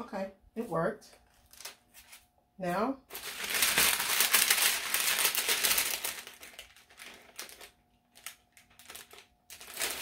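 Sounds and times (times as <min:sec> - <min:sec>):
paper rustling and crinkling: 0:01.2 - 0:02.3, 0:03.1 - 0:10.0.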